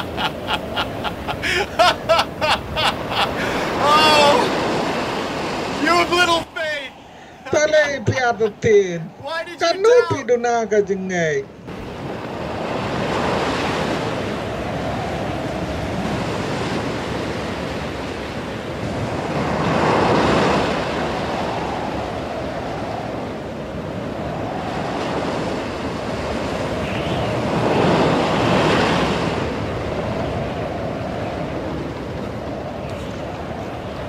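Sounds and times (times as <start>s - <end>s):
waves rushing: 0.0s - 10.3s, 11.6s - 34.0s
wind: 0.0s - 34.0s.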